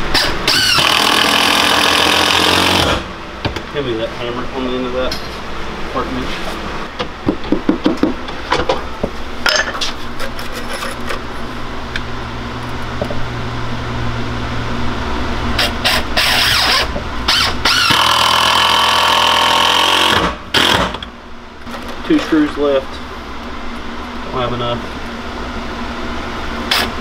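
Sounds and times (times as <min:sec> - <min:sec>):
cordless drill driving screws: 0:00.2 - 0:03.0, 0:15.6 - 0:21.0
hammer tapping on wood: 0:07.0 - 0:08.2.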